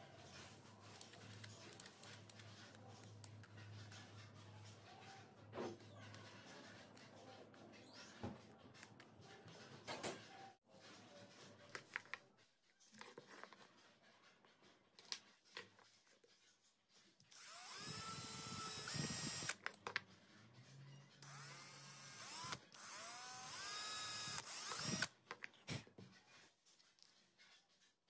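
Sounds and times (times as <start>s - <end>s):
electric drill whining: 17.4s - 19.6s, 21.2s - 25.1s.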